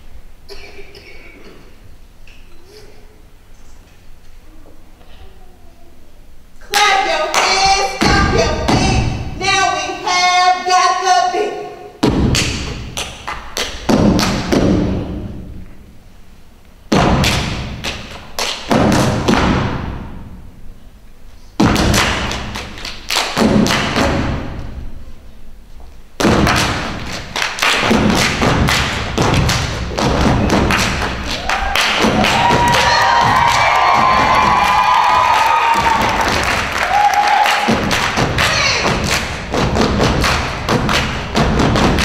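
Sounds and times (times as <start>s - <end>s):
foot stomps on wooden stage: 8.0s - 9.2s, 13.8s - 15.6s, 16.9s - 17.8s, 18.7s - 20.2s, 21.6s - 22.6s, 23.4s - 24.7s, 26.2s - 42.0s
hand claps: 26.5s - 29.8s, 30.5s - 39.4s, 40.0s - 41.2s
audience cheering: 31.2s - 38.8s.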